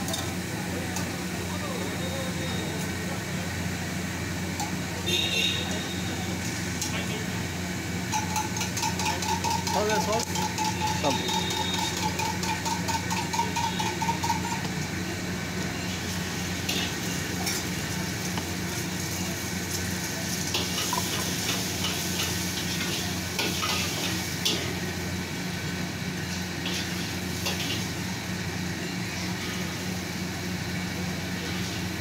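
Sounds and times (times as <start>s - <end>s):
griddle sizzling: 0.0s - 32.0s
tin shaker rattling: 8.1s - 14.6s.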